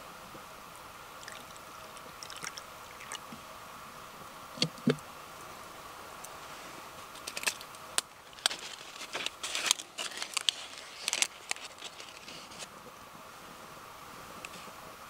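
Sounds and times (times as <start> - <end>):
dry leaf crackling: 7.0 - 12.8.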